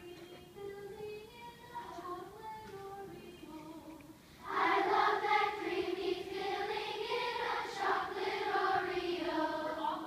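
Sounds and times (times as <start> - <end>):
children's choir singing vowels: 3.8 - 10.0.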